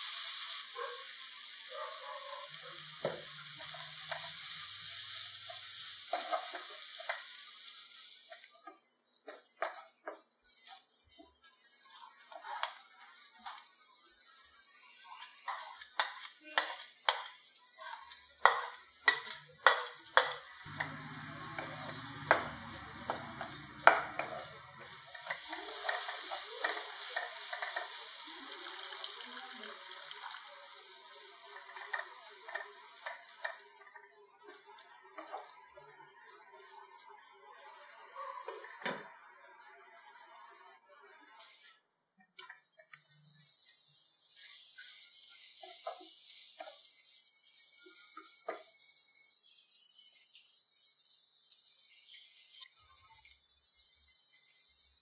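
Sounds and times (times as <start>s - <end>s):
vegetables sizzling in oil: 0.0s - 40.7s, 42.4s - 55.0s
spatula scraping pan: 3.2s - 4.7s, 5.4s - 7.4s, 11.9s - 12.8s, 15.1s - 28.2s, 31.4s - 34.6s.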